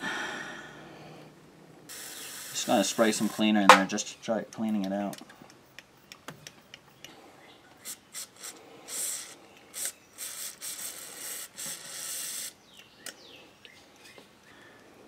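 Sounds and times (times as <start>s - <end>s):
aerosol spray hissing: 1.9s - 3.5s, 7.8s - 12.6s.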